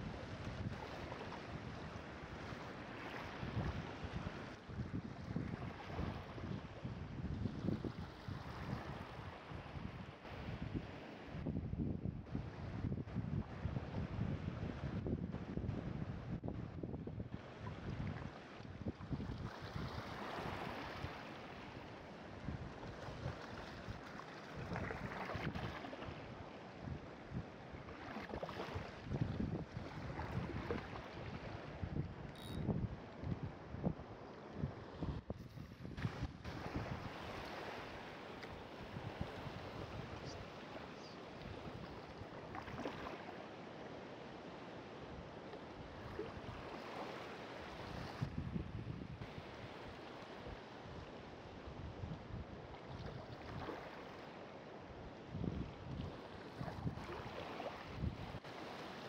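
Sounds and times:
choppy water lapping: 0:00.0 - 0:11.4, 0:17.3 - 0:32.3, 0:33.0 - 0:54.5, 0:55.2 - 0:59.0
wind buffeting microphone: 0:28.7 - 0:34.0, 0:34.6 - 0:37.2, 0:48.0 - 0:49.5.

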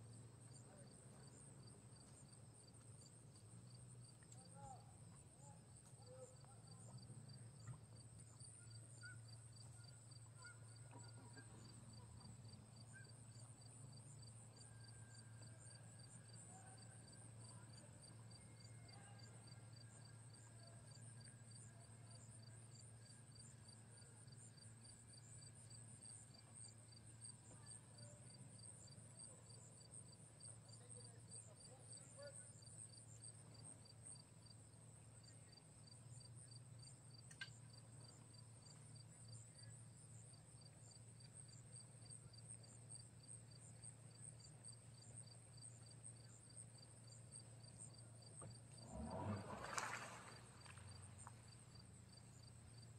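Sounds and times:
crickets chirping: 0:00.0 - 0:52.9
low steady hum: 0:33.4 - 0:52.9.

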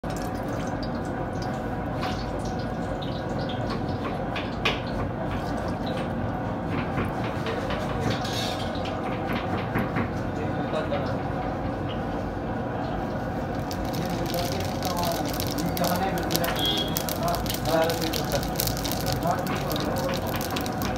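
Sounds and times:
oil crackles and pops: 0:00.0 - 0:06.1, 0:13.1 - 0:20.9
oil sizzling in a pot: 0:13.4 - 0:20.9.

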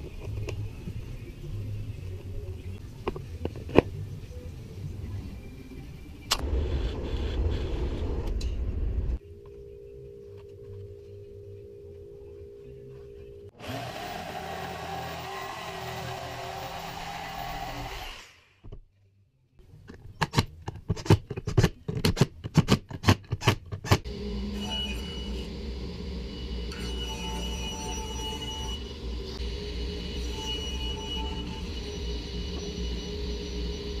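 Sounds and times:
jigsaw cutting through plywood: 0:13.6 - 0:18.4
steady hum: 0:24.1 - 0:34.0.

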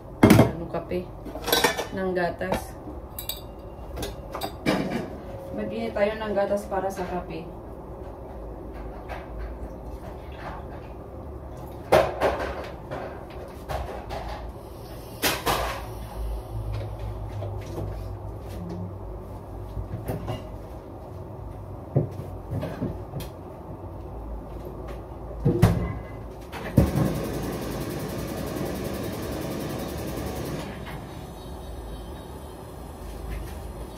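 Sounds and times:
kitchen utensils clattering: 0:01.3 - 0:02.0, 0:03.2 - 0:05.1.

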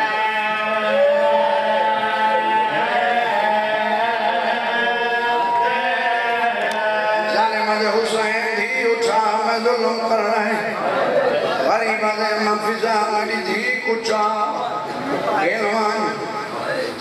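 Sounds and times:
man chanting a lament: 0:00.0 - 0:16.9.

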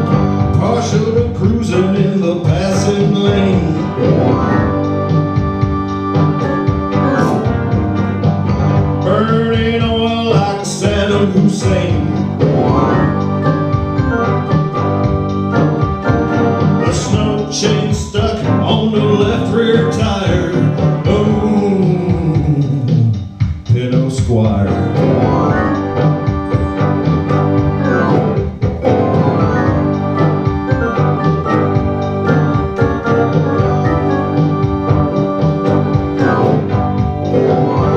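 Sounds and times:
electronic keyboard chords: 0:00.0 - 0:23.7, 0:24.4 - 0:37.9
man singing into microphone: 0:00.5 - 0:04.1, 0:09.0 - 0:13.0, 0:16.8 - 0:25.0.

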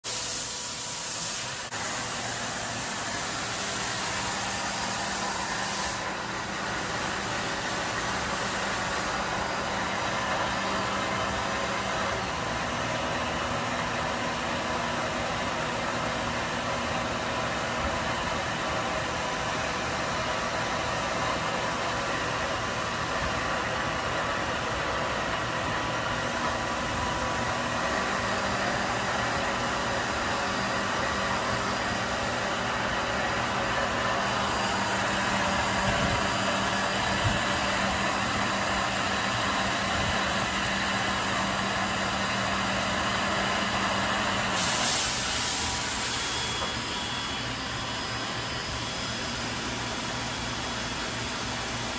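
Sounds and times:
high hiss: 0:00.0 - 0:13.5, 0:42.0 - 0:50.3
lathe mechanical hum: 0:00.0 - 0:51.9.

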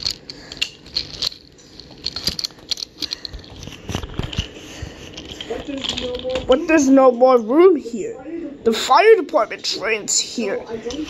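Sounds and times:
wooden toy trains clacking: 0:00.0 - 0:06.6.

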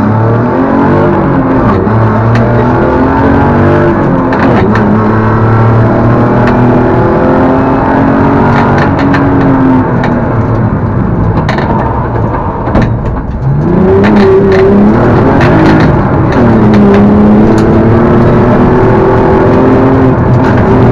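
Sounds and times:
rally car engine at high revs: 0:00.0 - 0:20.9
sharp clicks and cracks: 0:08.5 - 0:17.8, 0:19.5 - 0:20.9.

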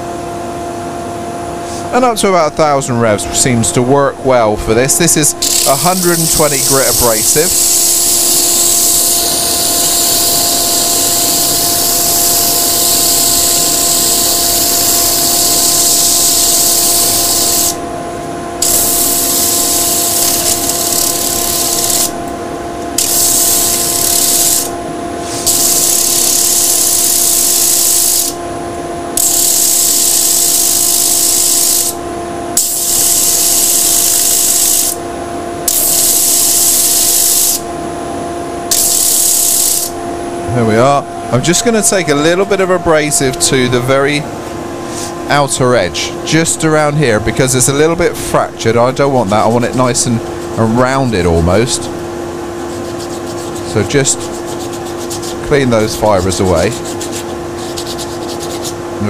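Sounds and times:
lathe and dust extractor hum: 0:00.0 - 0:29.2, 0:39.8 - 0:59.0
wood on sanding disc hissing: 0:05.5 - 0:17.8, 0:52.7 - 0:58.8.

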